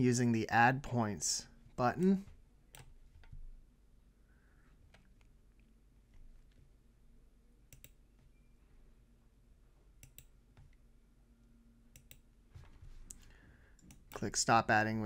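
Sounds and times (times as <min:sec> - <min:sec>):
faint computer mouse clicks: 0:07.7 - 0:08.0, 0:10.0 - 0:10.8, 0:11.9 - 0:12.2.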